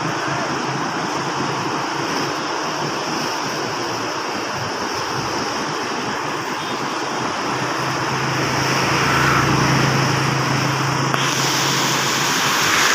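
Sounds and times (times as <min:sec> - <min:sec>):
floodwater rushing: 0:00.0 - 0:12.9
low engine hum: 0:00.0 - 0:12.9.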